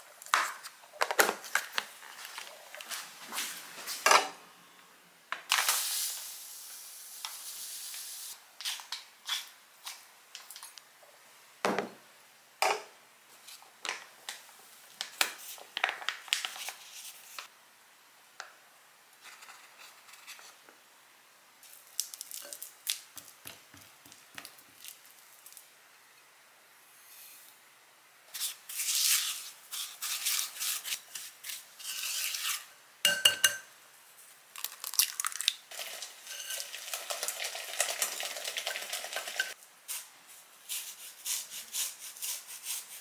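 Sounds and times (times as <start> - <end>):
steady hiss: 2.3 - 12.5
utensils clicking and tapping: 33.1 - 33.7.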